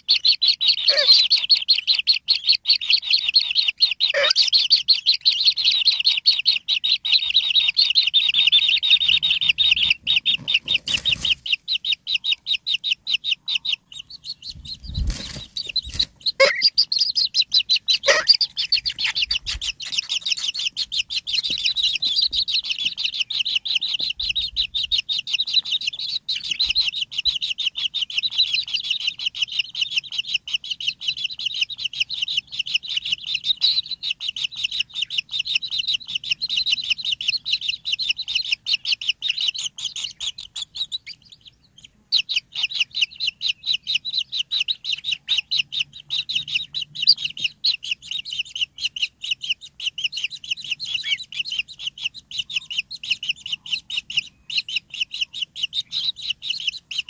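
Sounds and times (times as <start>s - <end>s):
nestlings begging with high chirps: 0.0s - 57.0s.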